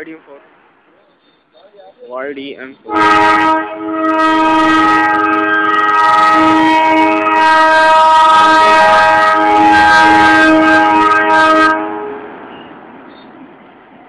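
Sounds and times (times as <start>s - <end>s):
locomotive air horn blast: 2.9s - 12.8s.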